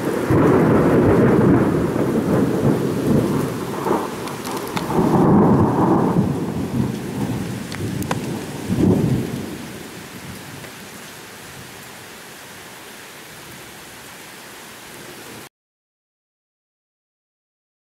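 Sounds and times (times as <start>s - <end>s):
thunder rumbling: 0.0s - 11.0s
steady rain: 0.0s - 15.5s.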